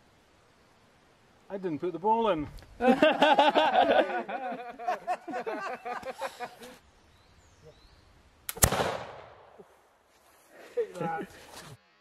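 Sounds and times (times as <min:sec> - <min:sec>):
men laughing: 0:02.8 - 0:06.8, 0:10.4 - 0:11.6.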